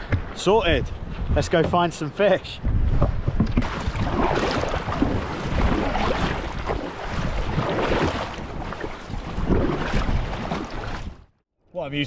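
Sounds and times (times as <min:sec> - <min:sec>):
wind buffeting microphone: 0:00.0 - 0:11.3
water splashing around kayak: 0:02.6 - 0:11.4.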